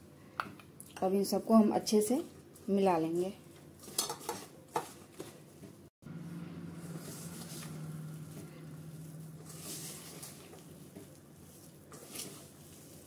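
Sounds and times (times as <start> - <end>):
hand squishing vegetables in bowl: 2.2 - 13.0
low steady hum: 6.0 - 11.7.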